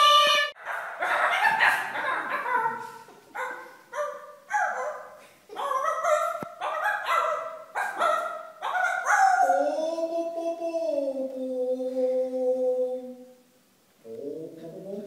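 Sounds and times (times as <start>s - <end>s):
voices singing opera: 0.0s - 0.6s.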